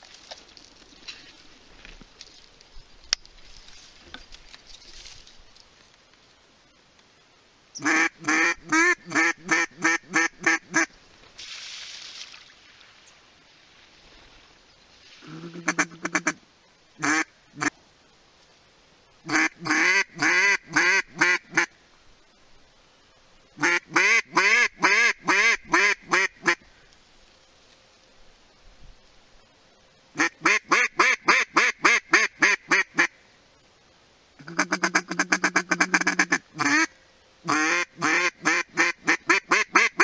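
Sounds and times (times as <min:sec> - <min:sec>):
duck call quacks: 0:07.8 - 0:10.9, 0:15.2 - 0:16.4, 0:17.0 - 0:17.7, 0:19.3 - 0:21.7, 0:23.6 - 0:26.6, 0:30.2 - 0:33.2, 0:34.4 - 0:36.9, 0:37.5 - 0:40.0
duck call rapid chatter: 0:34.4 - 0:36.9, 0:37.5 - 0:40.0.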